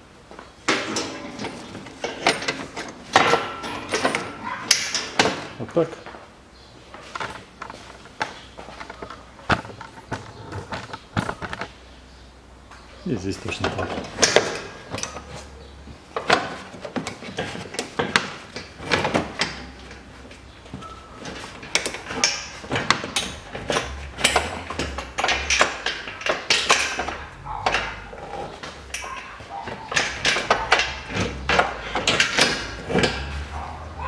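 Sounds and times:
metal parts clicking and scraping: 0.7s - 5.6s, 6.9s - 11.8s, 13.3s - 34.0s.

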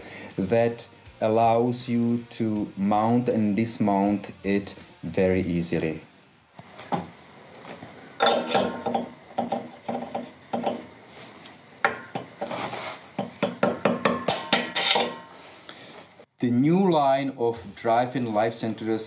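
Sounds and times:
mallet tapping metal: 13.2s - 15.3s.

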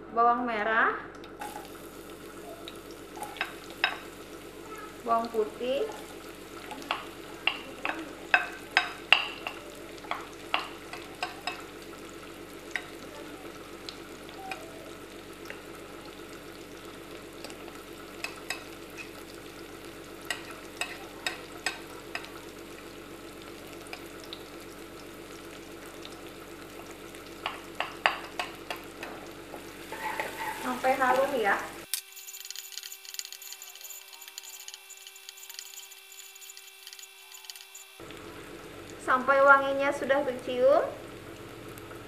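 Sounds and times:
shallots sizzling in oil: 1.3s - 42.0s
spatula knocking on pan: 6.9s - 11.7s, 27.4s - 29.2s.

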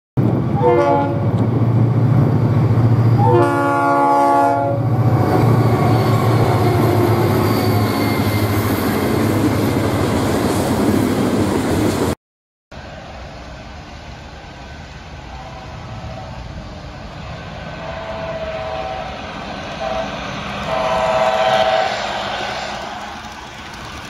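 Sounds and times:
train horn blasts: 0.6s - 1.3s, 3.2s - 4.9s, 15.3s - 16.7s, 17.8s - 22.7s
freight cars rumbling: 12.8s - 24.0s.

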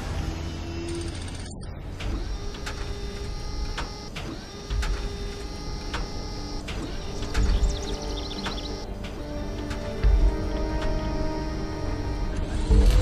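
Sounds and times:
mechanical whirring: 0.0s - 13.0s
sharp clicks: 0.8s - 12.5s.

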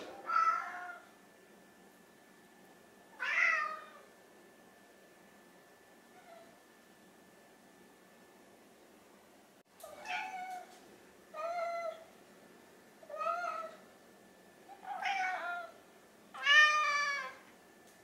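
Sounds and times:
cat meowing: 9.8s - 10.7s, 14.8s - 15.8s, 16.4s - 17.4s.

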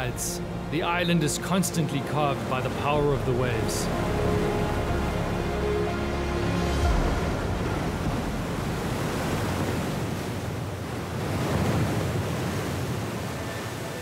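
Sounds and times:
ocean surf crashing on rocks: 6.5s - 14.0s.

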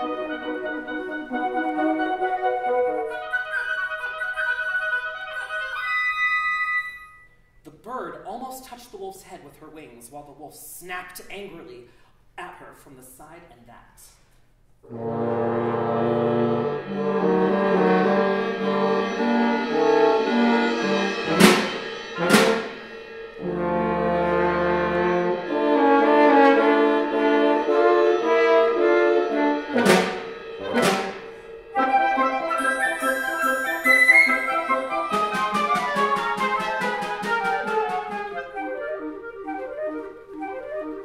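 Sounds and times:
woodwind quintet playing: 0.0s - 7.3s, 14.8s - 22.8s, 23.4s - 41.0s
sharp loud accents: 16.9s - 25.1s, 29.4s - 38.7s.

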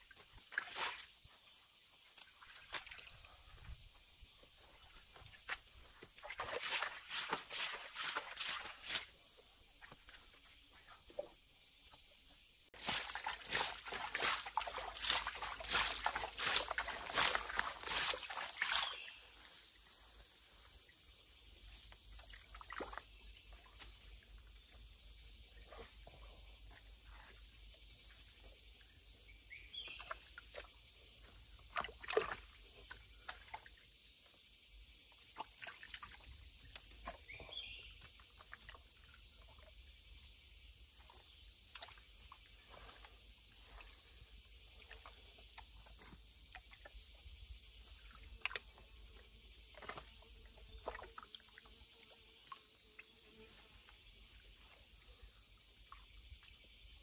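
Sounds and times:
water splashing: 6.1s - 9.2s, 12.8s - 19.2s.

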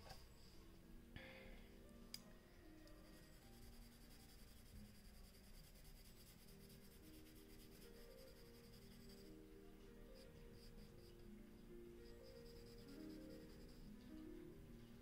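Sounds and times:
pencil scratching on paper: 3.0s - 9.5s, 10.1s - 11.3s, 12.0s - 14.0s.

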